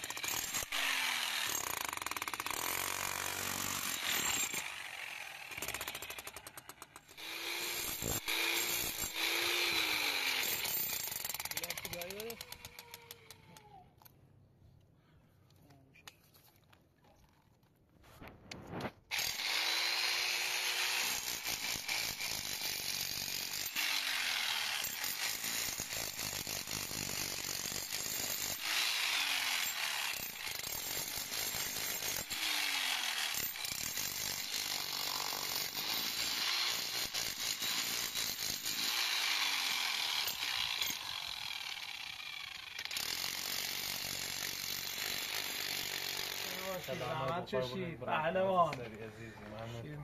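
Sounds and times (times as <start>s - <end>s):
angle grinder cutting concrete: 7.1s - 12.9s, 44.4s - 47.2s.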